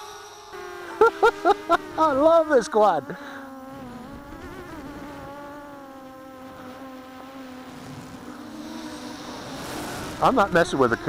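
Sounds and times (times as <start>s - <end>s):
quadcopter buzzing hum: 0.0s - 11.0s.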